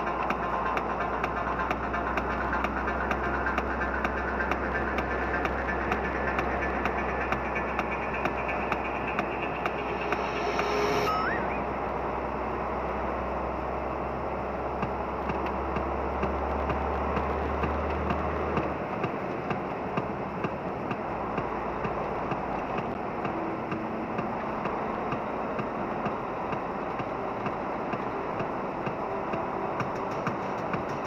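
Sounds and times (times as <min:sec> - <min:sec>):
deep low hum: 0:00.0 - 0:13.6
truck engine and tyre rumble: 0:00.0 - 0:31.0.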